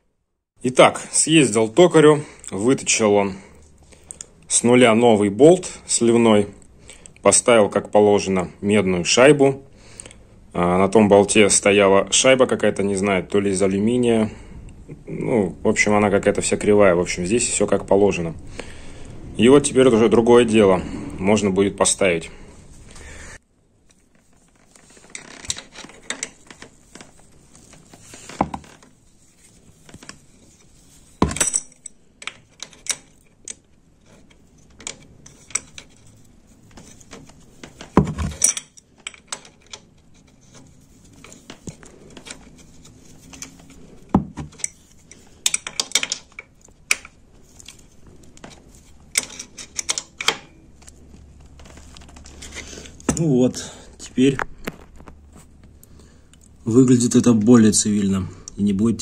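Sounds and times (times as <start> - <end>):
hand tools clinking on metal: 38.3 - 39.8.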